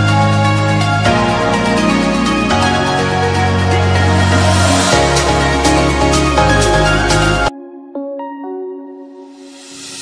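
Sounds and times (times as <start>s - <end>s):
deep bass line: 0.0s - 7.5s
sustained chords: 0.3s - 7.8s.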